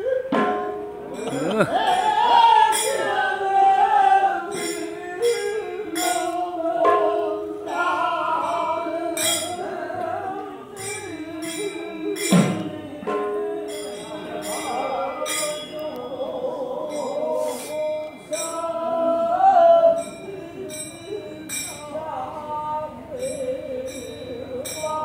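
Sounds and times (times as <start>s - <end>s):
men singing held notes: 0.0s - 25.0s
hand cymbals clashing: 0.5s - 3.1s, 4.5s - 7.7s, 8.4s - 9.7s, 10.7s - 16.0s, 16.8s - 18.8s, 19.9s - 22.0s, 23.1s - 25.0s.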